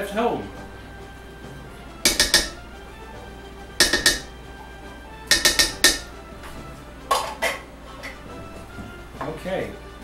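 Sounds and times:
metal clinks against steel pot: 2.1s - 2.6s, 3.8s - 4.3s, 5.3s - 6.1s.

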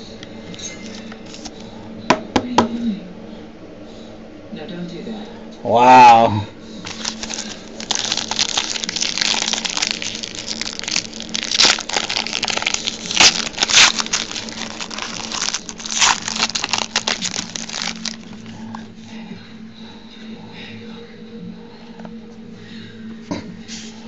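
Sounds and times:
faint steady hum: 0.0s - 24.0s
foil wrappers crinkling: 0.8s - 1.6s, 6.8s - 18.9s.

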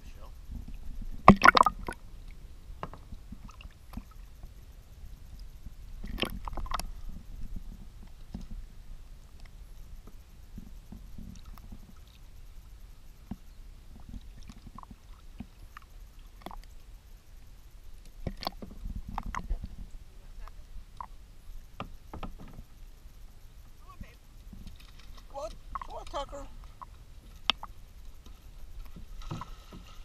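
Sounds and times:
water lapping against hull: 0.1s - 30.0s
paddle drips and plops: 0.5s - 4.6s, 5.3s - 12.6s, 13.2s - 16.9s, 17.5s - 20.0s, 20.6s - 22.8s, 24.4s - 30.0s
paddle knocking: 21.8s - 22.7s.

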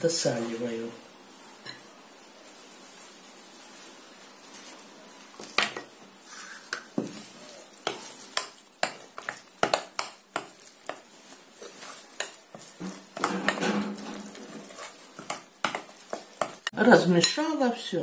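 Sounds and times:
spoon scraping batter: 4.5s - 16.7s.

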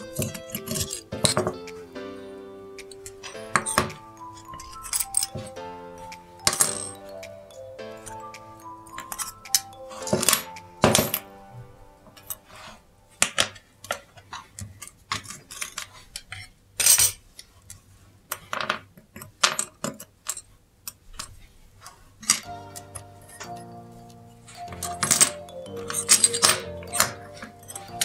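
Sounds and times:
small metal clicks and clinks: 0.0s - 1.8s, 2.8s - 7.4s, 8.0s - 11.2s, 24.6s - 28.0s.

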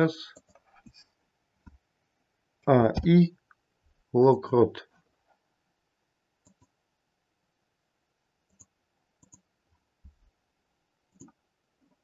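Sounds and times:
computer mouse clicks: 0.3s - 1.0s, 6.4s - 6.8s, 8.5s - 9.5s, 11.1s - 12.0s.

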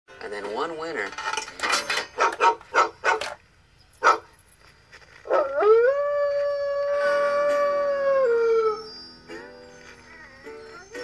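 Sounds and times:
dog howling: 5.3s - 9.0s.

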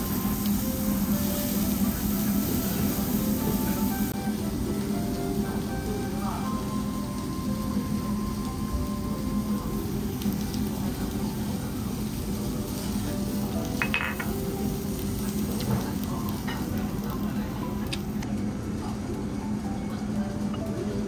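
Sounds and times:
beef sizzling on a grill: 0.0s - 21.0s
chopsticks clinking on a dish: 13.8s - 14.4s.

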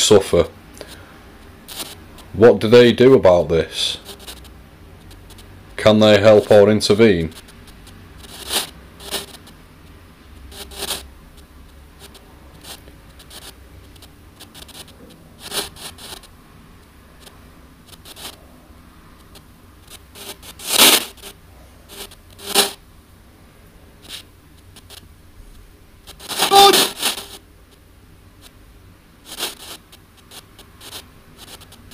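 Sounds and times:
crackling bursts of radio static: 0.0s - 31.9s
low steady hiss: 0.0s - 31.9s.

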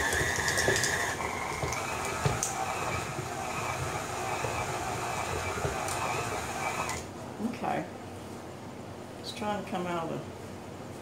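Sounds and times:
stand mixer motor whining: 0.0s - 7.1s.

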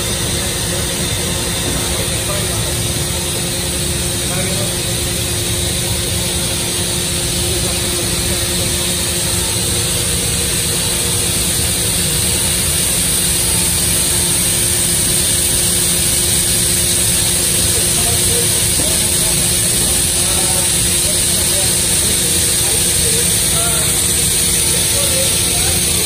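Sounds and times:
machine hum and hiss: 0.0s - 26.0s.

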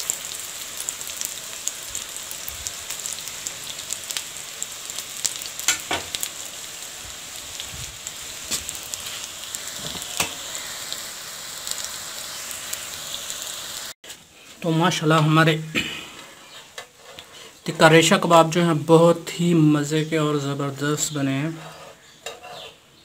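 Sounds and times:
chicken sizzling in oil: 0.0s - 14.0s.

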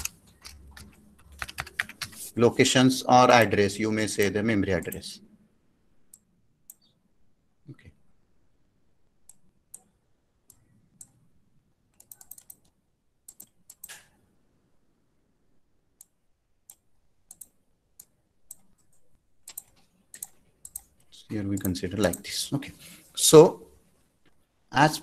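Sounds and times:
computer mouse and keyboard clicks: 0.0s - 2.2s, 11.9s - 14.1s, 16.0s - 22.3s.

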